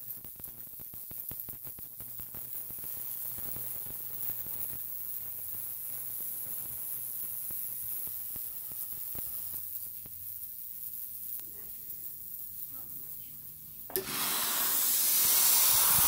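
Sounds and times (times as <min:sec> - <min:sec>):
sizzling hiss: 0:00.0 - 0:16.0
ultrasonic cleaner humming: 0:13.9 - 0:16.0.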